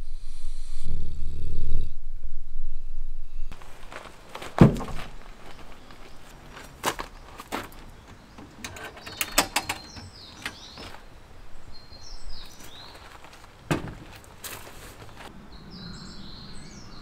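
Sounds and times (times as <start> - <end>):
small birds chirping: 5.1 - 17.0.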